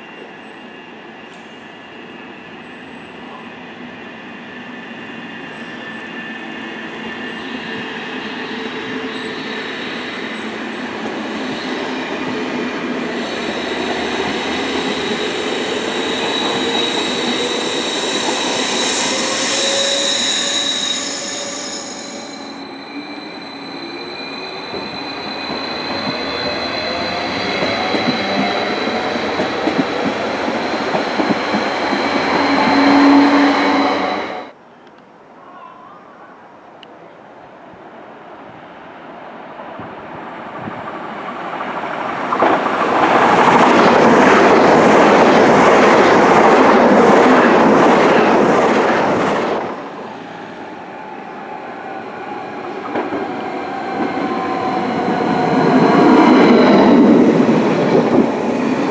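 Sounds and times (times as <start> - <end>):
wheel squeal: 13.1 - 28.4.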